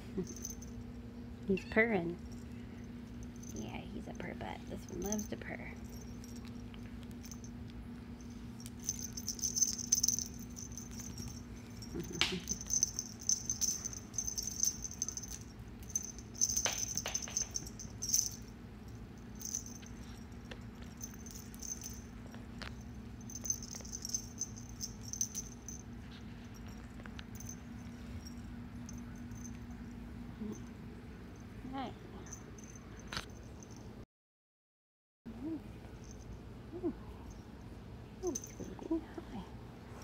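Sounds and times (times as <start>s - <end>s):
steady low hum: 0.0s - 34.0s, 35.3s - 40.0s
toy rattling and jingling: 0.2s - 0.8s, 2.2s - 7.6s, 8.2s - 30.7s, 32.2s - 33.8s, 36.0s - 36.3s, 38.2s - 38.9s.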